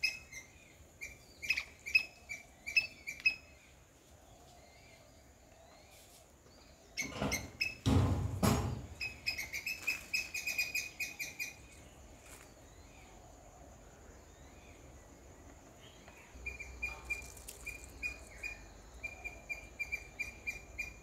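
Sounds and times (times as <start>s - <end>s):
high-pitched squirrel chirps: 16.4s - 21.0s.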